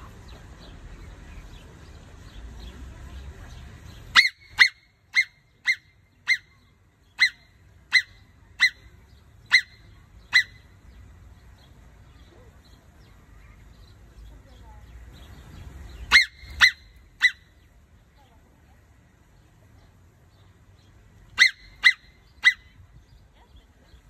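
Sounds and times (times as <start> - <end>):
marmot alarm whistles: 21.4 - 22.6.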